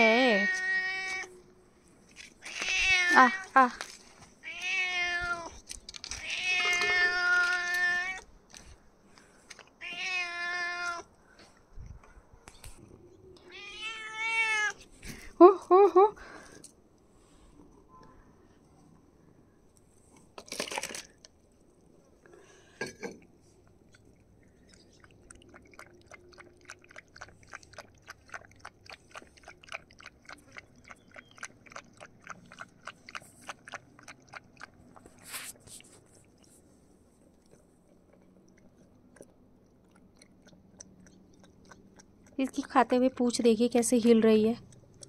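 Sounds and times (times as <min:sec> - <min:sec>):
cat chewing crunchy food: 0:23.2 - 0:42.8, 0:44.6 - 0:45.0.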